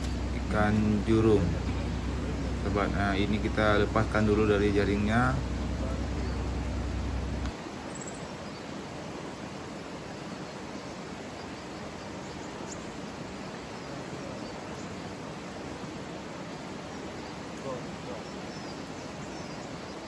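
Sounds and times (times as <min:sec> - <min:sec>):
low hum: 0:00.0 - 0:07.6
river rushing over rocks: 0:00.0 - 0:20.0.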